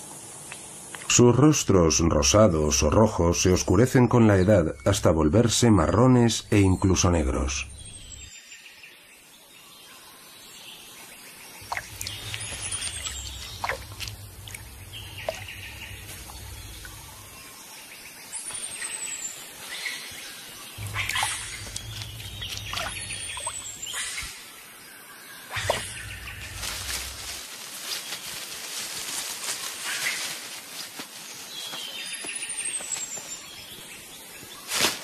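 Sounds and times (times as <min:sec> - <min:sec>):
light water sounds: 0:11.6 - 0:17.2, 0:20.8 - 0:24.4
low rumble: 0:11.8 - 0:17.4, 0:20.8 - 0:23.9, 0:25.6 - 0:27.4.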